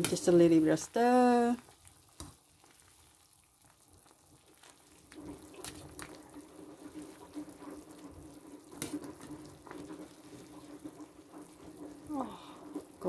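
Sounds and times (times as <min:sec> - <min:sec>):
soup bubbling in a pot: 0:00.0 - 0:13.0.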